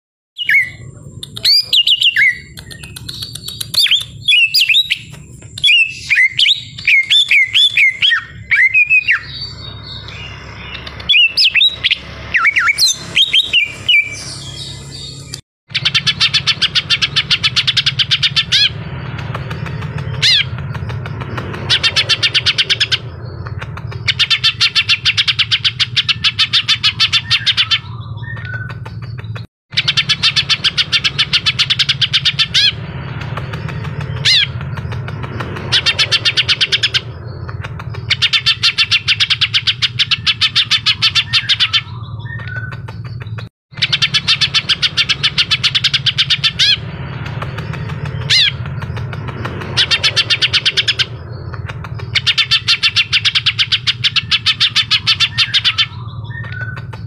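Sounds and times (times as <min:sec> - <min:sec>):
bird singing whistled phrases: 0:00.4 - 0:15.2
bird chattering trills: 0:00.4 - 0:57.0.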